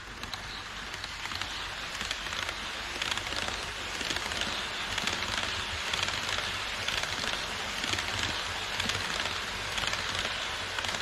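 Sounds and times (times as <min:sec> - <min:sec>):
model train wheels rattling: 0:00.0 - 0:11.0.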